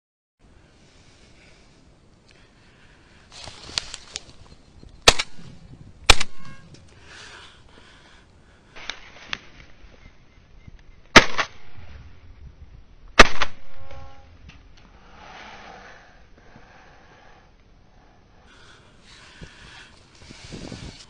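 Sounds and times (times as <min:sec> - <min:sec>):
faint cracks: 0:03.3 - 0:04.5
shotgun shots: 0:05.0 - 0:05.5, 0:06.1 - 0:06.7, 0:11.1 - 0:11.9, 0:13.2 - 0:14.2.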